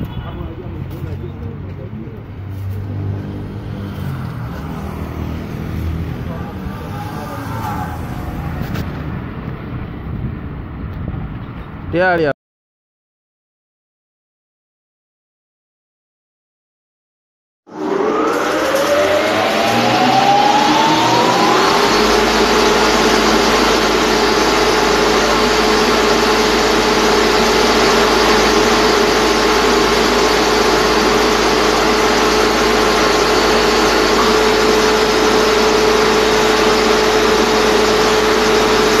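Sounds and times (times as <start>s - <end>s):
hammer mill whining: 1.2s - 9.4s, 17.7s - 39.0s
dense rushing noise: 2.3s - 12.2s, 17.7s - 39.0s.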